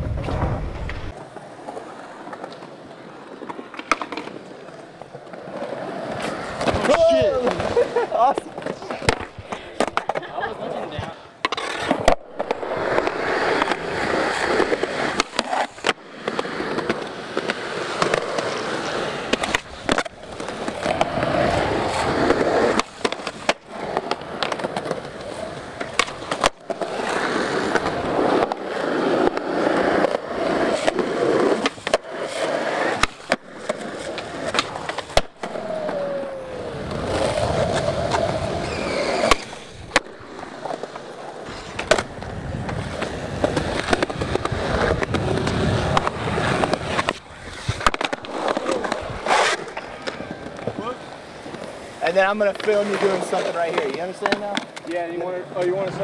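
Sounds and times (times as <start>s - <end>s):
skateboard wheels rolling on concrete: 0.0s - 56.0s
skateboard clacking on ground: 0.1s - 56.0s.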